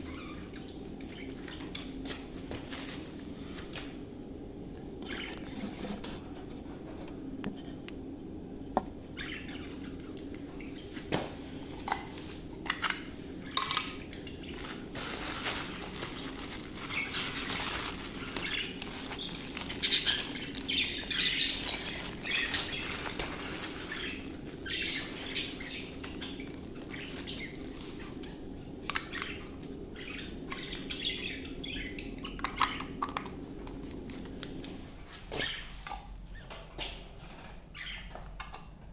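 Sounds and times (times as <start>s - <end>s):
plastic bag crinkling: 14.4s - 28.2s
budgerigars chirping: 16.0s - 28.1s.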